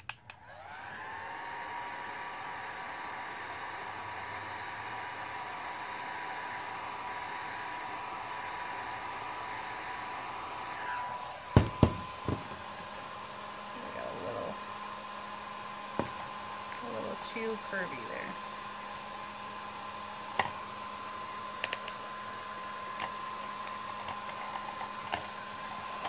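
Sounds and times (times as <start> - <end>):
heat gun blowing with whine: 0.0 - 26.0
heat gun knocking on wooden bench: 11.5 - 12.8, 16.0 - 16.3.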